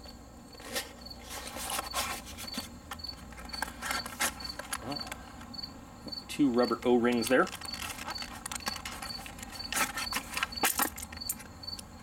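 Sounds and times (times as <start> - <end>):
insect chirping: 0.0 - 12.0
cardboard box rustling and clicking: 0.6 - 4.8, 7.1 - 11.3.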